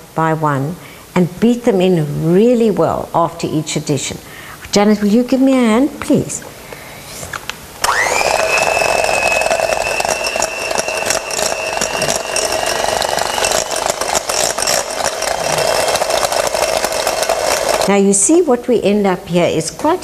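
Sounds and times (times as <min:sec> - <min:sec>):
beater clicking: 0:07.8 - 0:17.9
electric hand beater whining: 0:07.8 - 0:17.9.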